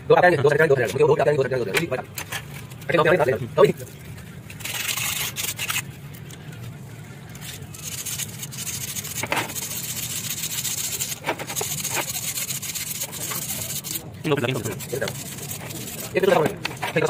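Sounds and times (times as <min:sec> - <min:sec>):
scraper rasping on metal: 0:07.9 - 0:17.0.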